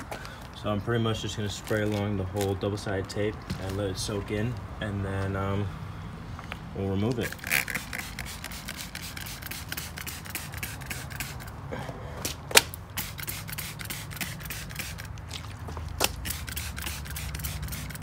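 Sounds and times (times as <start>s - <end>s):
spray bottle squirting: 7.2s - 11.6s, 12.6s - 15.2s, 16.0s - 18.0s.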